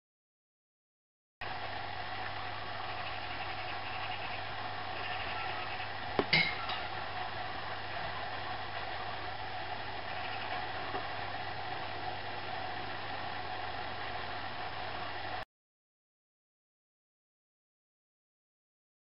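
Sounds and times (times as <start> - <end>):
steady background hum and hiss: 1.4 - 15.4.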